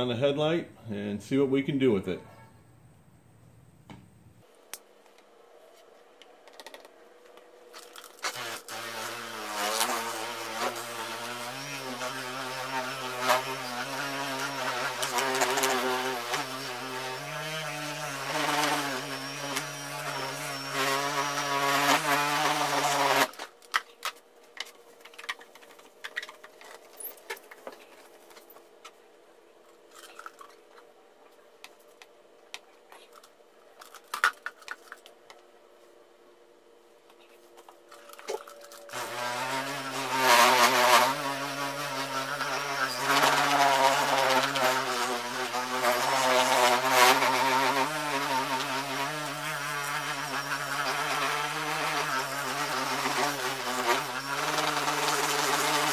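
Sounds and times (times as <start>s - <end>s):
electric polisher motor hum: 8.3s - 23.3s, 38.7s - 55.9s.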